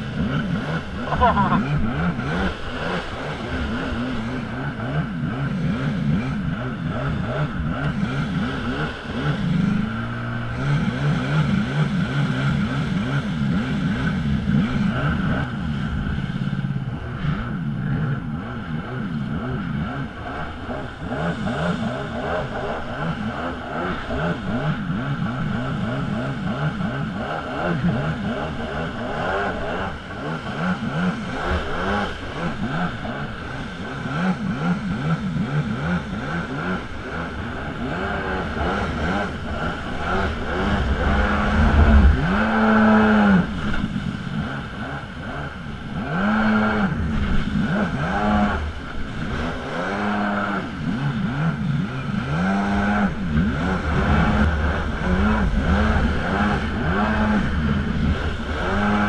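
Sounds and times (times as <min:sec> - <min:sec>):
jet ski engine running: 0:00.0 - 0:59.0.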